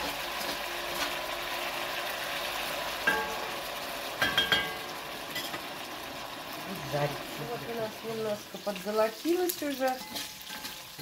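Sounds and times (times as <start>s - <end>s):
meat sizzling in a pot: 0.0s - 11.0s
metal spatula clinking: 9.8s - 10.8s.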